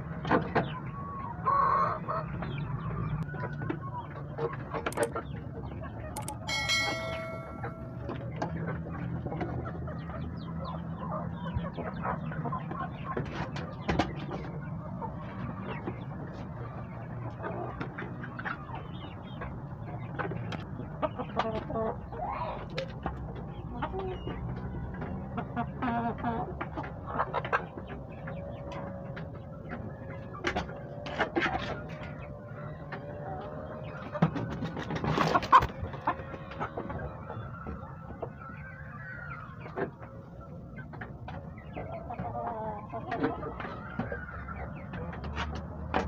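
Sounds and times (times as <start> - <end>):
chickens clucking: 0.0 - 7.4, 8.8 - 46.0
sharp clicks: 4.9 - 5.2, 6.2 - 7.8.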